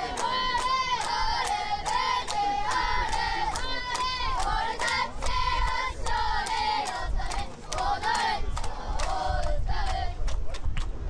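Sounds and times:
crowd shouting and cheering: 0.0s - 5.9s.

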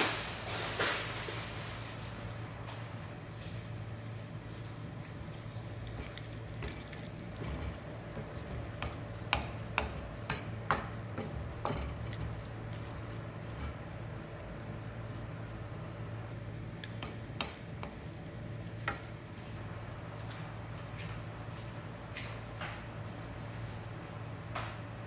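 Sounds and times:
steady low hum: 0.0s - 25.0s
spatula knocking against pan: 6.0s - 12.8s.

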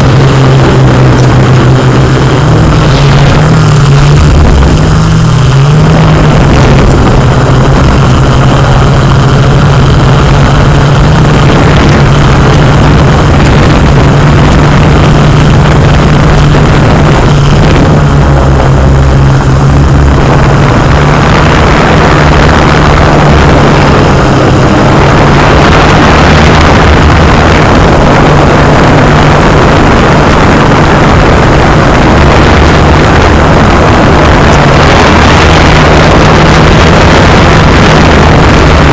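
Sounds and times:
drone motors and propellers: 0.0s - 38.9s.

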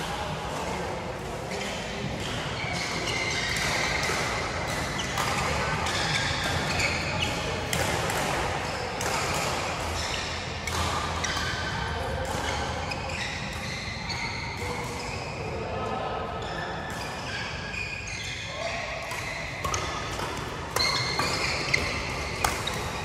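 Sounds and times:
rackets hitting shuttlecock: 1.6s - 15.3s, 18.6s - 23.0s.

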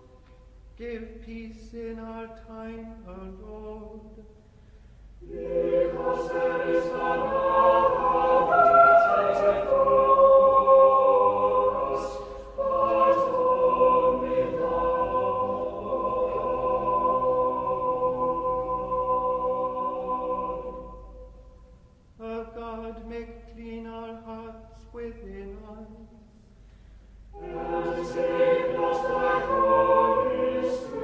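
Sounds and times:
person chanting: 5.2s - 21.3s, 27.4s - 31.0s
choir singing in harmony: 5.2s - 22.9s, 27.3s - 31.0s.

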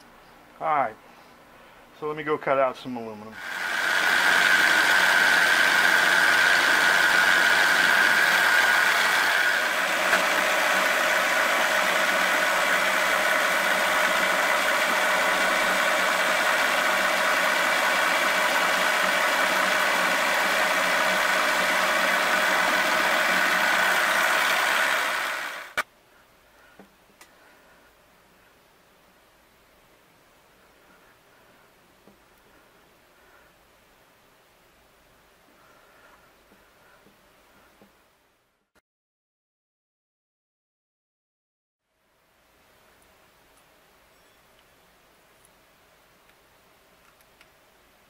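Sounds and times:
milling machine drilling metal: 3.4s - 25.8s.

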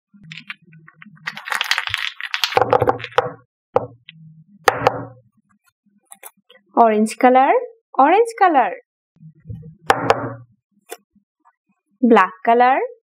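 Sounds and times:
plastic jars clattering: 1.2s - 3.2s
jars knocking on table: 2.6s - 4.0s, 4.7s - 5.2s, 9.9s - 10.4s.

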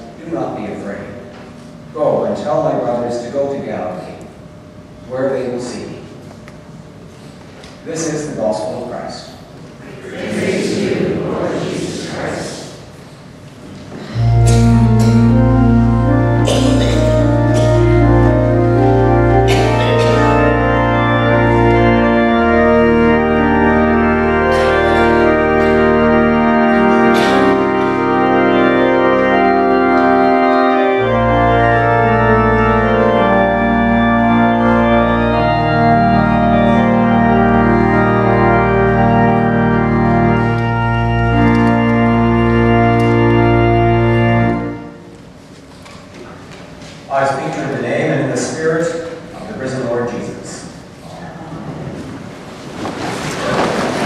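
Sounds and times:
church organ chords: 0.0s - 6.1s, 13.8s - 45.6s, 47.1s - 51.0s
deep organ pedal bass: 14.1s - 45.0s.

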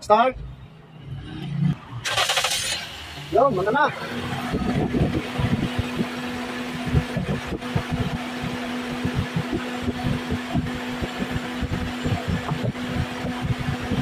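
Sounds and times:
low rumble and thumps: 0.1s - 14.0s
car engine idling: 2.0s - 14.0s.

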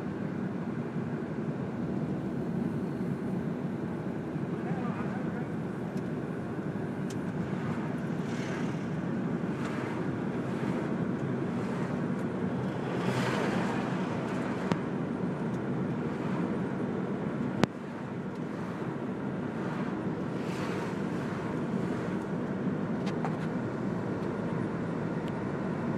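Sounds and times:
tyre and engine hum: 0.0s - 25.9s
passing vehicles whooshing: 6.8s - 25.9s.

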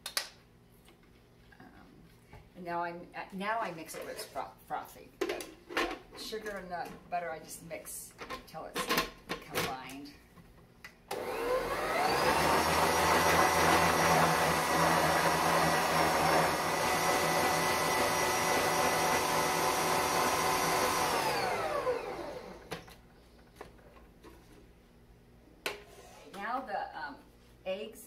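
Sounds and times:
electric stand mixer motor whine: 11.1s - 22.8s.

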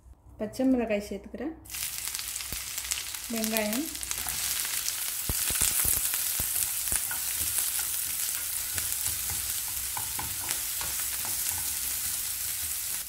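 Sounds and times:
vegetables sizzling in a pan: 1.7s - 13.0s
spatula scraping and tapping pan: 4.1s - 12.8s.

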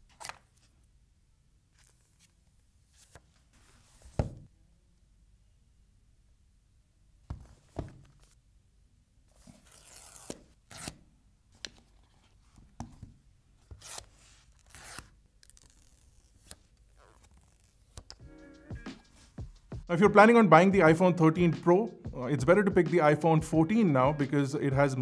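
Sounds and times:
protective film peeling: 13.8s - 18.1s.

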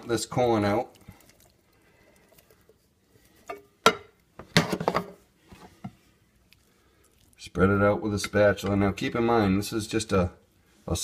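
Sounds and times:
kitchenware clattering: 3.4s - 5.2s.

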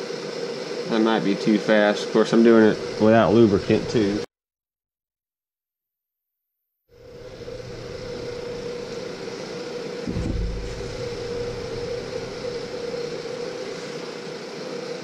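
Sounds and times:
milling machine humming: 0.0s - 4.2s, 7.0s - 15.0s
short low thump: 10.1s - 12.3s.

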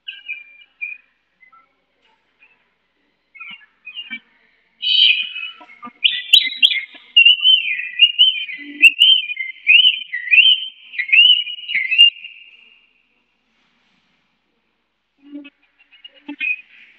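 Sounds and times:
bird singing warbled whistles: 4.8s - 12.6s.

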